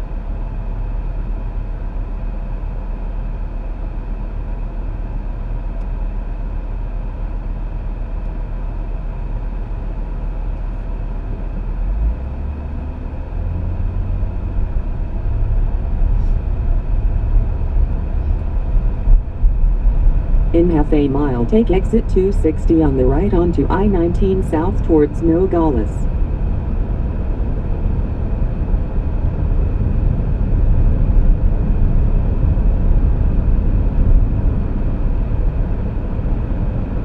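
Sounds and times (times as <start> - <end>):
car cabin road noise: 8.2 - 37.0.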